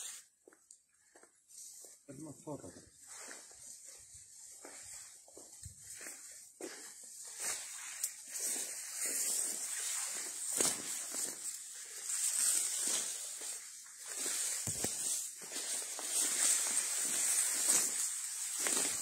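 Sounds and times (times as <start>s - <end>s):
footsteps through vegetation: 0.0s - 19.0s
leaves rustling past: 7.3s - 19.0s.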